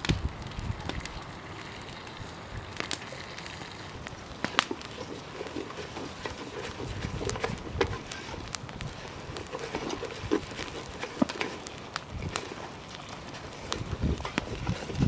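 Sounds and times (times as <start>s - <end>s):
wooden spoon stirring rice in pot: 4.2s - 15.0s.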